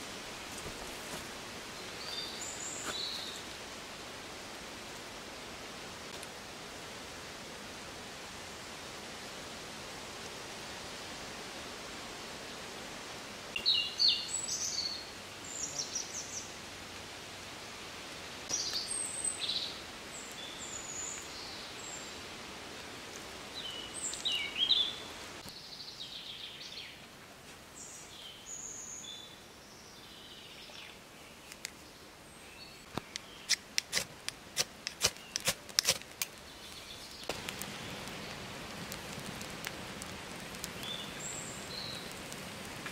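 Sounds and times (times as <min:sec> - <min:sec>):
small birds chirping: 0:01.7 - 0:03.5, 0:18.5 - 0:22.2, 0:27.8 - 0:34.0, 0:34.8 - 0:38.5, 0:40.6 - 0:42.3
sharp clicks and snaps: 0:32.9 - 0:36.4.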